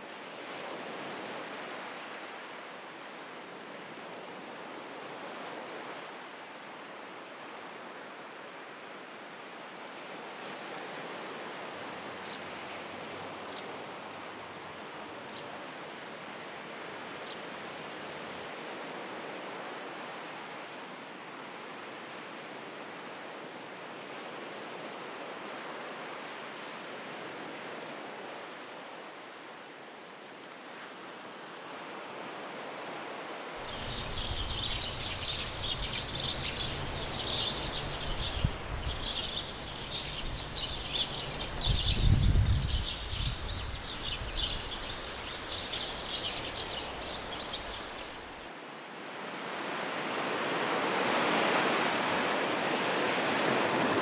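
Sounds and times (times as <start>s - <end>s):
small birds twittering: 11.9s - 17.7s, 33.6s - 48.4s
low wind rumble: 33.6s - 48.4s
soft steady noise: 33.6s - 48.4s.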